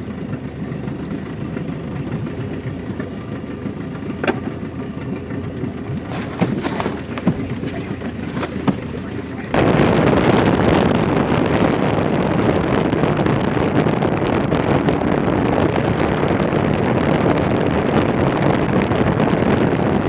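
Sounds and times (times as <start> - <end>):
boat motor droning: 0.0 - 20.0
wind noise on microphone: 5.4 - 20.0.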